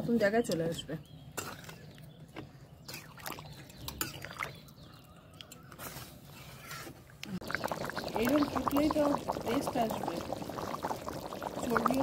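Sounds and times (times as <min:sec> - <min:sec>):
curry simmering with bubbling pops: 0:07.2 - 0:12.0.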